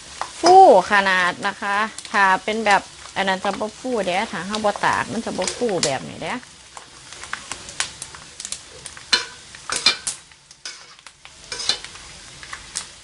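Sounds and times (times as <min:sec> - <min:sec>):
pork skin sizzling in oil: 0:00.0 - 0:13.0
tongs scraping and knocking wok: 0:04.5 - 0:06.1, 0:06.7 - 0:13.0.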